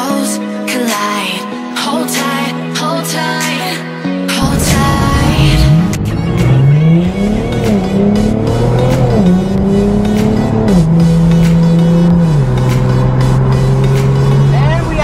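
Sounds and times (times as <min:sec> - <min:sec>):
car engine accelerating through gears: 0:04.4 - 0:15.0
music with steady beat: 0:04.4 - 0:15.0.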